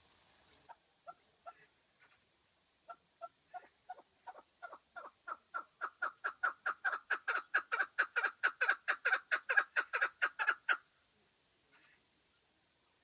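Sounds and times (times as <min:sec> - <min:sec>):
partridge calling: 0:02.9 - 0:10.8.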